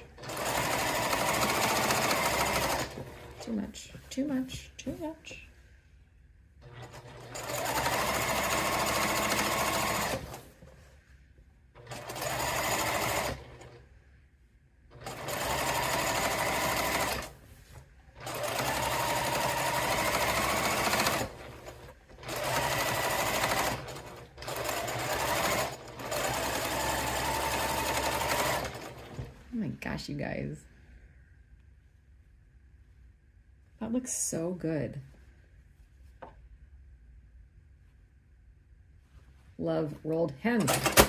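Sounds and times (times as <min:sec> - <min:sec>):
sewing machine stitching: 0:00.0 - 0:03.6, 0:06.6 - 0:10.5, 0:11.8 - 0:13.8, 0:14.9 - 0:17.4, 0:18.1 - 0:29.3, 0:40.5 - 0:41.0.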